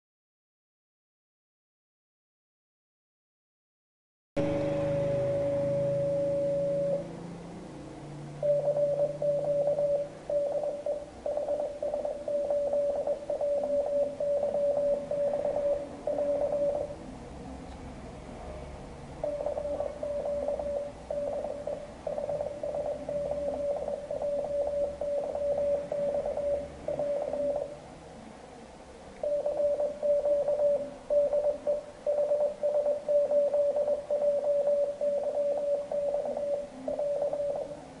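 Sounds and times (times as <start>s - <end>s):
morse code beeps: 4.4s - 7.1s, 8.4s - 17.0s, 19.2s - 27.8s, 29.2s - 37.8s.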